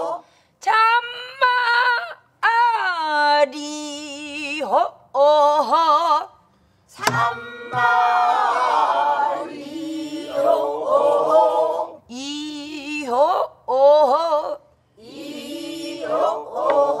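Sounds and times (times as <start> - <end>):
group singing in unison: 0.0 - 0.2, 7.0 - 12.0, 15.0 - 17.0
woman singing with vibrato: 0.0 - 6.3, 7.0 - 9.2, 12.1 - 14.6
barrel drum stroke: 7.0 - 8.1.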